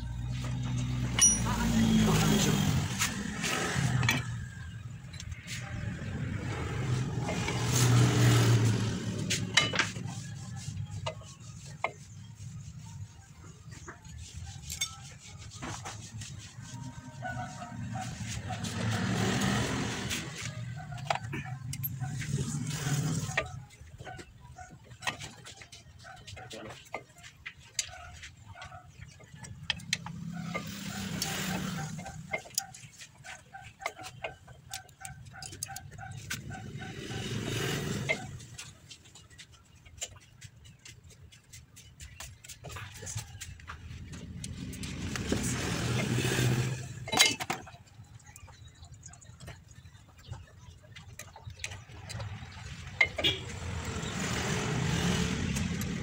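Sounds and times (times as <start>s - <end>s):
vehicle passing: 0.0s - 11.7s, 15.3s - 23.8s, 35.8s - 39.5s, 43.6s - 47.1s, 51.7s - 56.0s.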